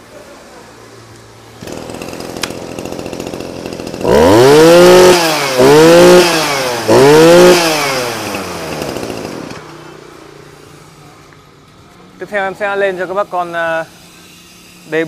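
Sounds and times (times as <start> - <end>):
brush cutter engine idling and revving: 1.4 - 11.5.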